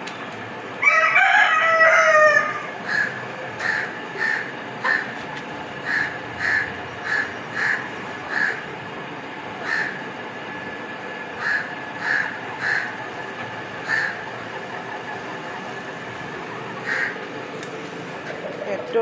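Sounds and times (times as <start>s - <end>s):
rooster crowing: 0.8s - 3.1s.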